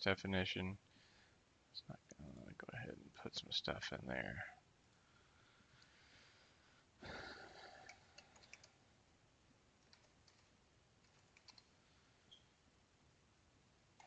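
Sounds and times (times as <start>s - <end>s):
computer keyboard typing: 7.8s - 8.8s, 9.8s - 11.7s.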